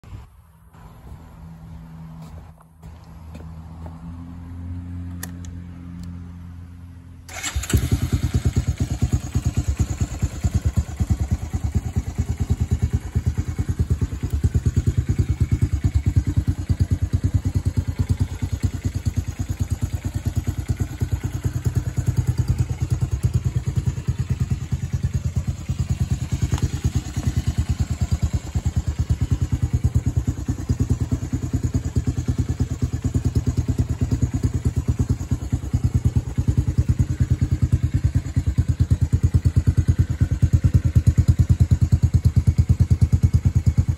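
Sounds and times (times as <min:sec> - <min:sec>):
atv engine idling: 0:07.2 - 0:43.9
electric starter cranking: 0:07.3 - 0:08.1.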